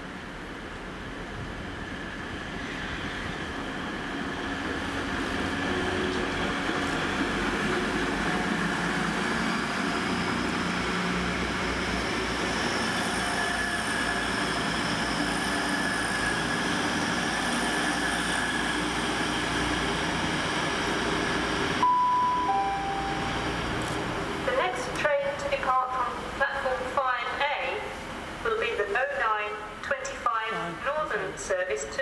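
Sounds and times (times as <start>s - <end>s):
train engine drone: 0.0s - 31.8s
rail noise: 0.0s - 32.0s
two-note announcement chime: 21.8s - 23.6s
high whine: 21.8s - 24.1s.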